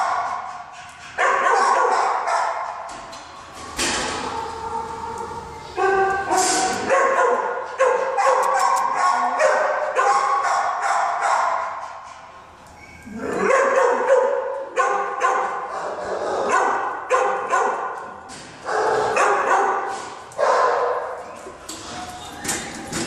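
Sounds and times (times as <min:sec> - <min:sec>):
dogs barking: 0:00.0 - 0:00.6, 0:01.2 - 0:02.9, 0:04.5 - 0:12.1, 0:13.1 - 0:21.3.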